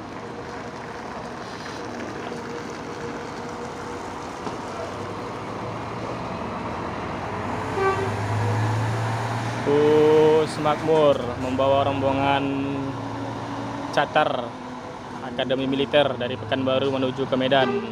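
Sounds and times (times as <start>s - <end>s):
bus diesel engine: 0.0s - 17.9s
road noise: 0.0s - 17.9s.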